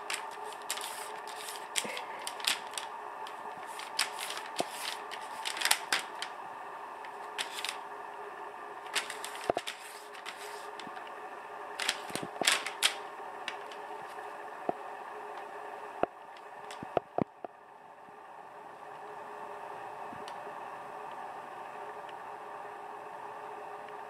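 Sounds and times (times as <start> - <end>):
cat claws scratching paper: 0.0 - 6.3, 7.3 - 7.8, 8.9 - 11.0, 11.8 - 13.8
faint steady hum: 0.0 - 24.0.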